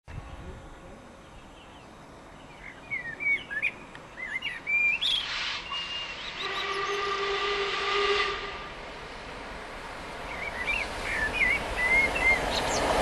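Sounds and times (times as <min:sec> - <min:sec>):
birds chirping: 0:01.2 - 0:07.2, 0:10.2 - 0:13.0
rush of steam: 0:04.7 - 0:13.0
steam whistle chord: 0:05.8 - 0:08.7.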